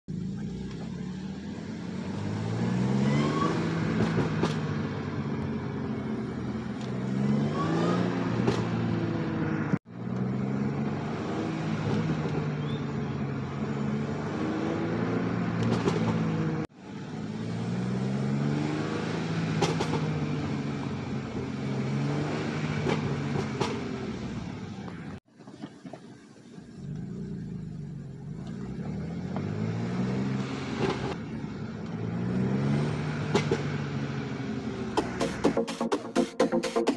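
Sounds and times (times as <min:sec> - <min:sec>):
car engine accelerating: 0:00.1 - 0:36.9
exhaust crackles: 0:22.4 - 0:36.8.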